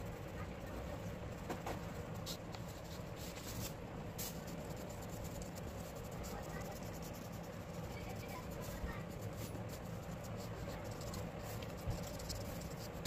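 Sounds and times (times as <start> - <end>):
low background hum: 0.0 - 13.0
paintbrush scratching on paper: 0.0 - 13.0.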